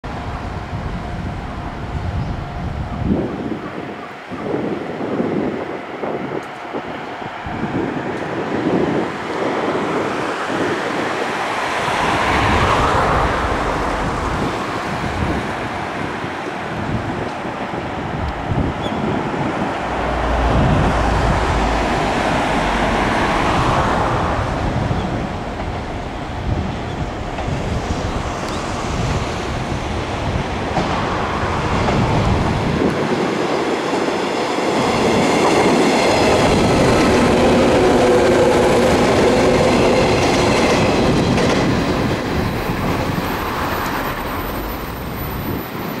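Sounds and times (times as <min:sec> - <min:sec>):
high whine of passing train: 0:00.0 - 0:46.0
train wheels clattering over rails: 0:18.8 - 0:45.8.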